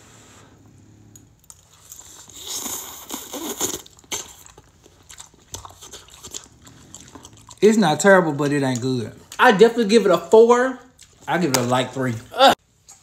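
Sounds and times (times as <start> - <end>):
chewing clicks and smacks: 1.2 - 7.7, 8.6 - 9.5, 10.8 - 11.8
noodles slurped: 1.5 - 9.5.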